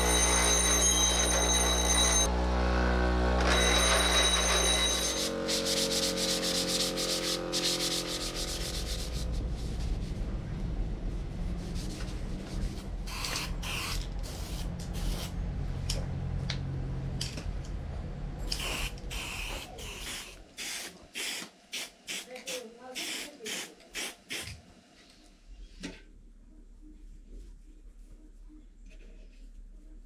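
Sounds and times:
sandpaper rubbing metal: 0:05.0 - 0:10.0.

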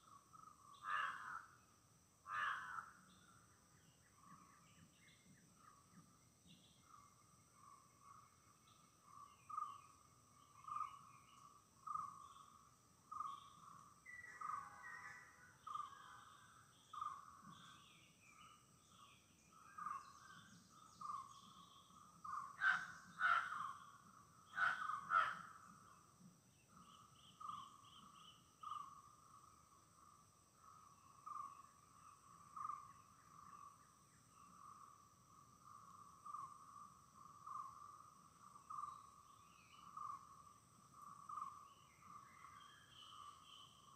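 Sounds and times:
birds chirping: 0:15.6 - 0:29.2
loud harsh bird calls: 0:22.3 - 0:23.8, 0:24.5 - 0:25.6.

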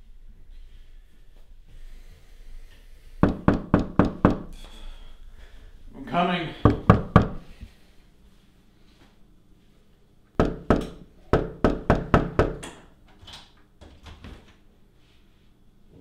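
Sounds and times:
knocking on wooden door: 0:03.2 - 0:04.5, 0:06.6 - 0:07.4, 0:10.4 - 0:12.6.

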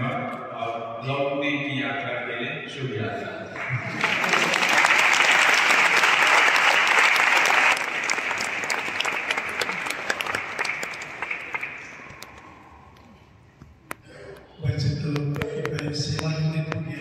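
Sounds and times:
audience applauding: 0:03.5 - 0:12.8.

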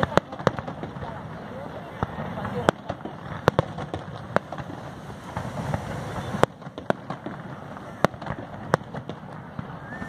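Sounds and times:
low rumble and crackle of fireworks: 0:00.0 - 0:10.0
firework shells bursting: 0:02.0 - 0:10.0.

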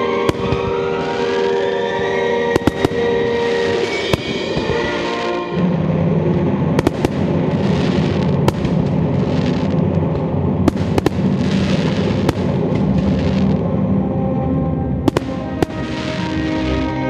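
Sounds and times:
fireworks crackling: 0:00.0 - 0:13.6, 0:15.0 - 0:17.0
deep rumble: 0:00.0 - 0:17.0
firework shells bursting: 0:00.2 - 0:01.6, 0:02.6 - 0:05.5, 0:06.8 - 0:13.6, 0:15.1 - 0:16.5.

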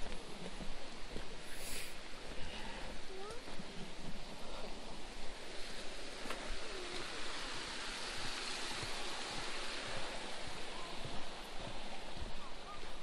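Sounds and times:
water rushing over rocks: 0:04.6 - 0:13.0.

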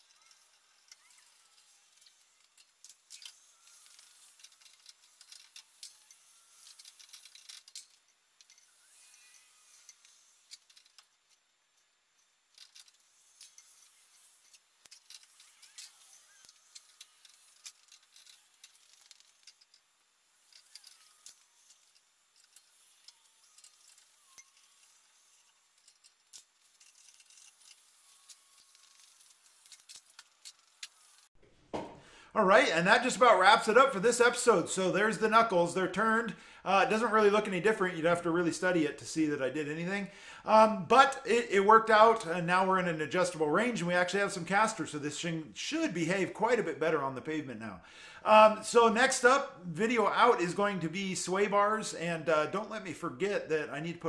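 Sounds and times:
metallic tool clicks and rattles: 0:00.0 - 0:31.3.

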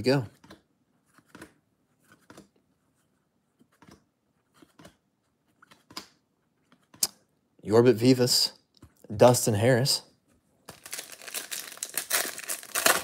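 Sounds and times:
trading cards sliding and flicking: 0:00.4 - 0:02.5.

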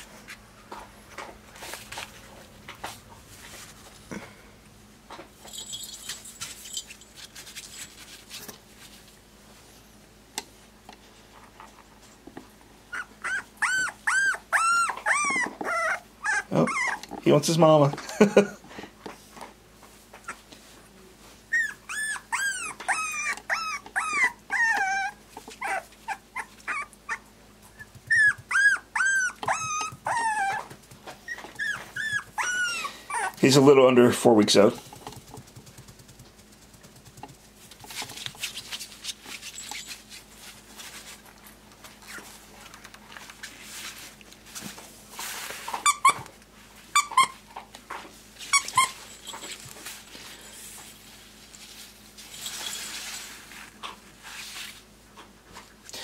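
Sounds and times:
puppy shuffling on fabric: 0:01.5 - 0:04.1, 0:33.4 - 0:42.6, 0:48.1 - 0:55.7
puppy whining: 0:12.8 - 0:17.3, 0:20.1 - 0:20.6, 0:21.4 - 0:33.7, 0:45.7 - 0:47.6, 0:48.4 - 0:49.7
rustling on cloth: 0:34.6 - 0:41.3.

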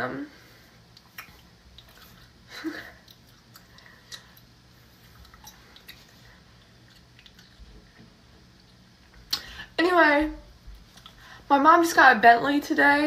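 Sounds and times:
person chewing with mouth open: 0:00.8 - 0:09.5, 0:10.7 - 0:11.3.

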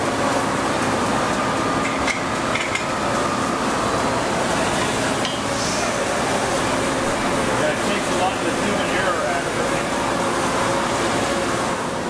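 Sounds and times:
machine shop hiss: 0:04.6 - 0:10.9.

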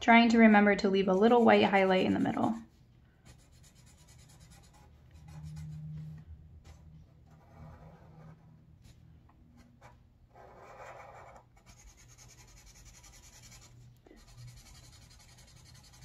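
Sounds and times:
marker stroking across paper: 0:09.8 - 0:16.0.

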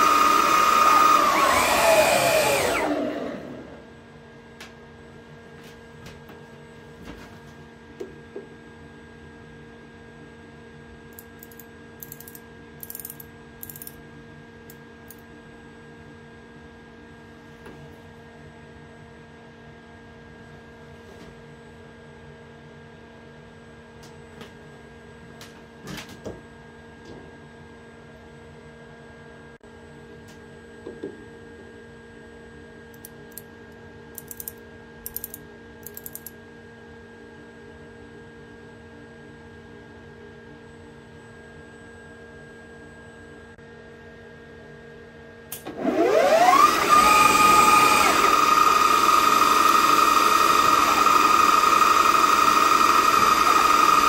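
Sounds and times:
micrometer ratchet clicking: 0:11.2 - 0:14.0, 0:34.2 - 0:36.3.

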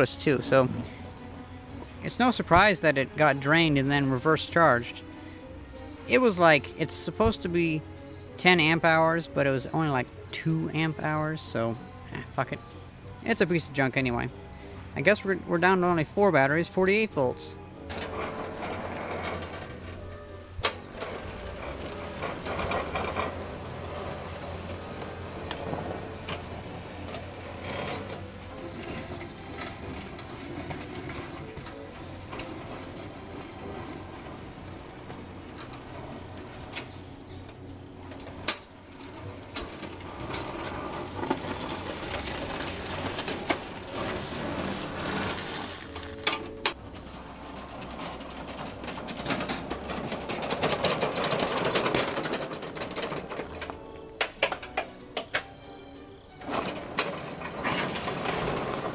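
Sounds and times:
gravel crunching and scraping: 0:00.0 - 0:58.9
clicks and rattles: 0:20.6 - 0:55.6, 0:56.4 - 0:58.9.

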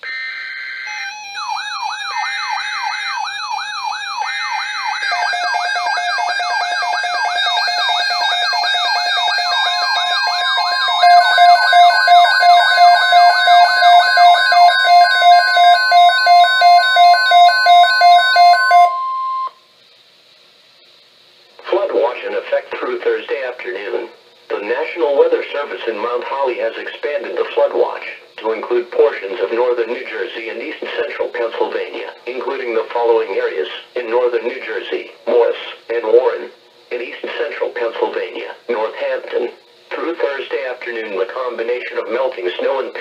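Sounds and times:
intermittent beeps: 0:00.0 - 0:19.6
loud pulsing beeps: 0:00.0 - 0:19.6
steady alarm tone: 0:00.0 - 0:19.6
warbling alarm siren: 0:00.0 - 0:19.6.

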